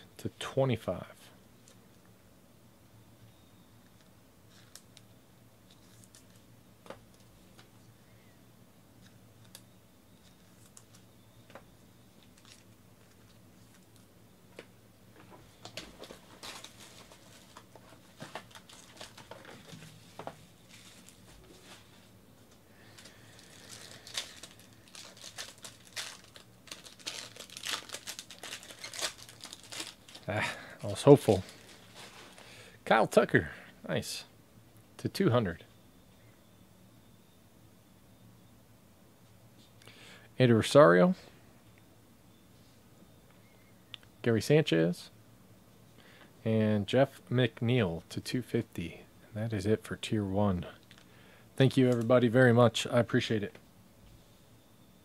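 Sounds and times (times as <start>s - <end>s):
foil card pack crinkling: 12.2s - 14.0s, 15.5s - 32.6s
plastic shrink wrap tearing: 16.0s - 19.9s, 23.0s - 30.3s.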